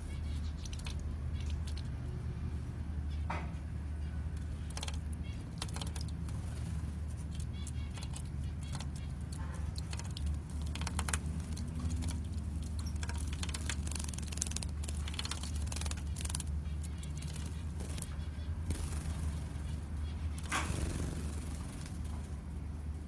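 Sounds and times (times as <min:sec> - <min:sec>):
steady low hum: 0:00.0 - 0:23.0
wing flutter: 0:04.4 - 0:22.4
birds splashing in water: 0:04.5 - 0:22.1.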